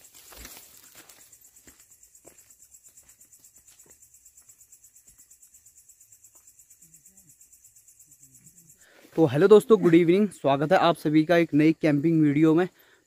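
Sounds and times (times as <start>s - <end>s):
footsteps on dirt trail: 0.0s - 5.2s
crickets chirping: 0.0s - 13.0s.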